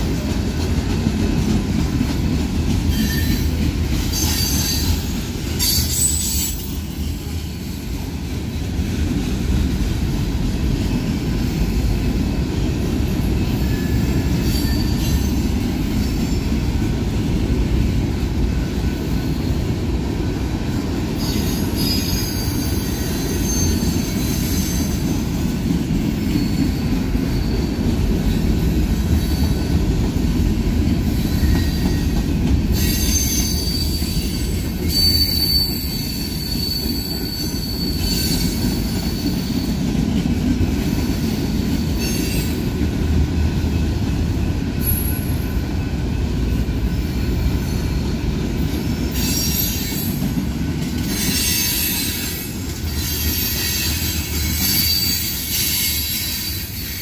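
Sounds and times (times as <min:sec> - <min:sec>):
train wheels rumbling on rail: 0:00.0 - 0:57.0
high wheel squeal: 0:02.9 - 0:07.1, 0:13.4 - 0:15.5, 0:21.2 - 0:25.2, 0:32.7 - 0:39.8, 0:49.1 - 0:50.2, 0:51.1 - 0:57.0.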